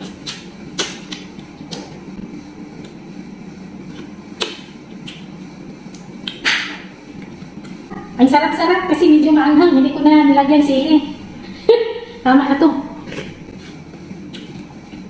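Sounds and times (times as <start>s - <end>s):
wet mouth smacks: 0.0s - 2.0s, 3.9s - 8.0s, 14.2s - 14.7s
steady low hum: 0.0s - 15.0s.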